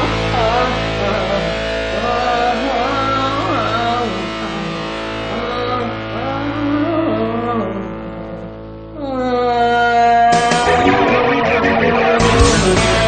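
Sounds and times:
held backing music: 10.3 - 13.0
wordless sliding melody: 10.4 - 13.0.

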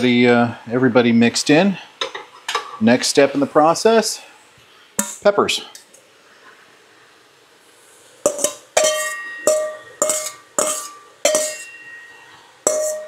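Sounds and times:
metal clanking against cooking pan: 8.3 - 13.0.

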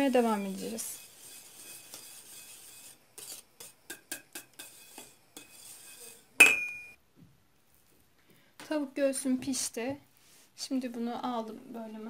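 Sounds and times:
whisk clicking against pot: 0.1 - 6.2
metallic clank ringing: 6.4 - 7.0.

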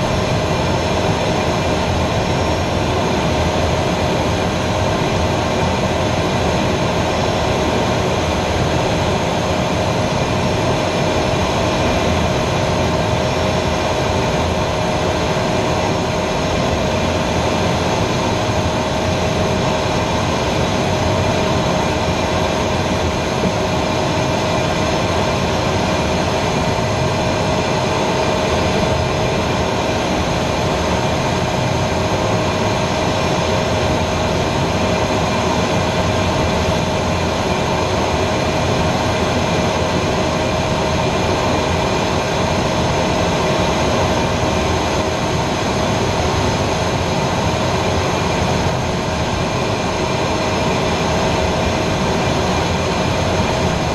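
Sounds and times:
jet engine high whine: 0.0 - 53.9
rush of engine and air noise: 0.0 - 53.9.

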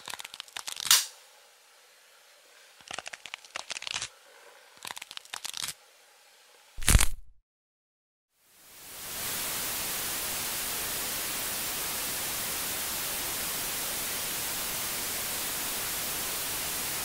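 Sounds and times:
tv static hiss: 8.4 - 17.0.

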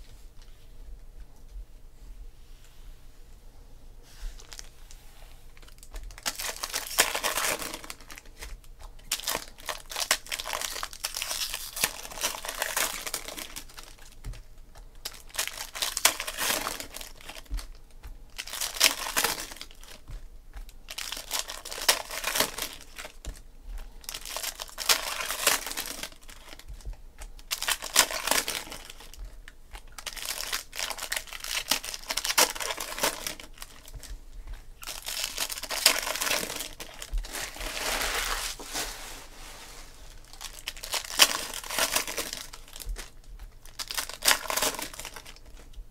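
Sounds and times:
foil packs crinkling and tearing: 4.4 - 4.7, 5.6 - 39.3, 40.1 - 45.8
cards being handled: 4.4 - 39.4.

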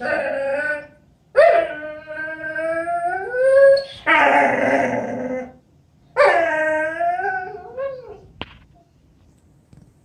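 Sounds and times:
dog whining: 0.0 - 5.6, 6.2 - 8.3.

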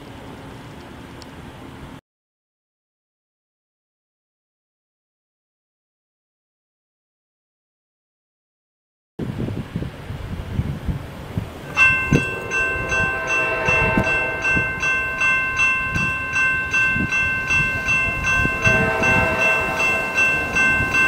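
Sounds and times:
crossing warning bell ringing: 11.5 - 21.0
lower ringing tones: 11.6 - 21.0.

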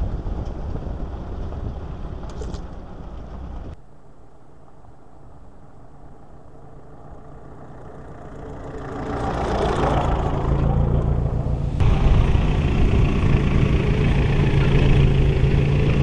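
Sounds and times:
van engine driving past: 5.7 - 16.0.

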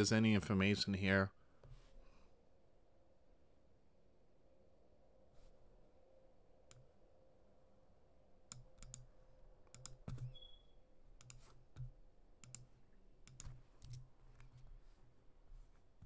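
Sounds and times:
computer mouse clicking: 6.7 - 6.9, 8.5 - 10.5, 11.2 - 14.7.

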